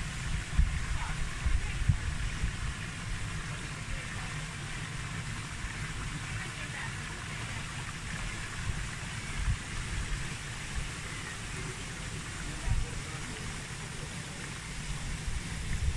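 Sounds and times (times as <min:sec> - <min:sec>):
wind buffeting microphone: 0:00.0 - 0:02.8, 0:14.8 - 0:15.9
waterfall splashing into pool: 0:00.0 - 0:15.9.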